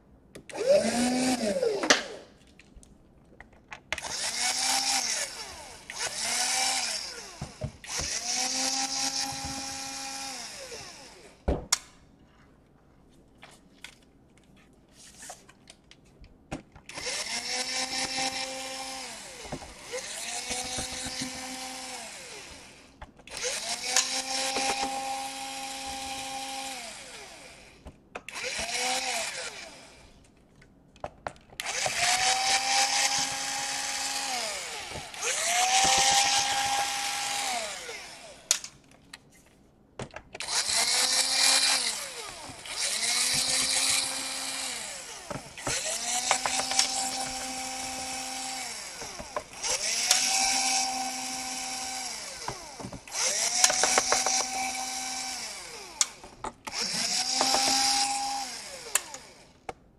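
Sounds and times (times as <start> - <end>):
electric screwdriver whining: 0.5 - 2.2, 4.0 - 11.2, 16.9 - 27.7, 28.3 - 30.0, 31.6 - 38.8, 40.4 - 59.4.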